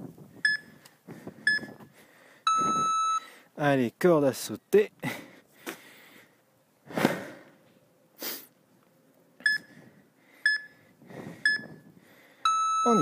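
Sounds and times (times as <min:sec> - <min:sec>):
heavy breaths into microphone: 0:00.2 - 0:02.5, 0:05.0 - 0:07.6, 0:09.6 - 0:12.5
short electronic timer beeps: 0:00.4 - 0:00.7, 0:01.5 - 0:01.7, 0:02.5 - 0:03.3, 0:09.4 - 0:09.7, 0:10.5 - 0:10.7, 0:11.4 - 0:11.8, 0:12.4 - 0:13.0.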